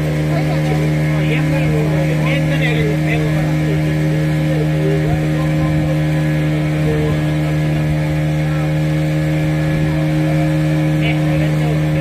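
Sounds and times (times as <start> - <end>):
boat engine running steadily: 0.0 - 12.0.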